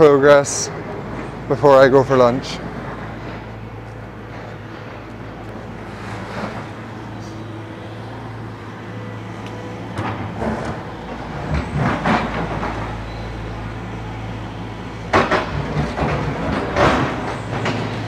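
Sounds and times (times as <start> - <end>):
excavator diesel engine running: 0.0 - 18.0
clanks and knocks: 9.4 - 13.0, 15.1 - 18.0.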